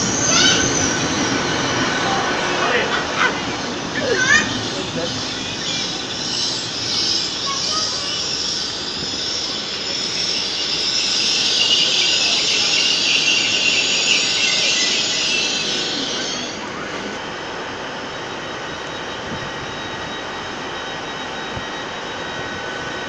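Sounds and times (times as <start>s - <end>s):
train brakes hissing: 0.0s - 23.0s.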